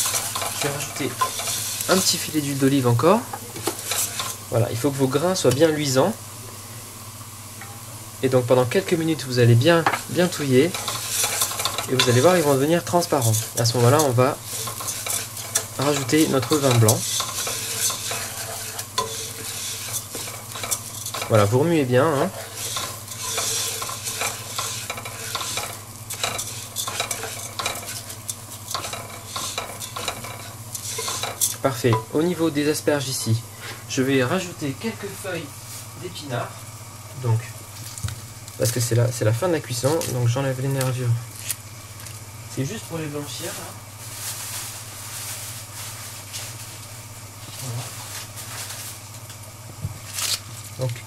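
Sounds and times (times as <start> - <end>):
rice scraping in pot: 0.0 - 2.9, 3.6 - 4.6, 10.2 - 32.0
constant low hum: 0.0 - 51.0
steady sizzle: 0.0 - 51.0.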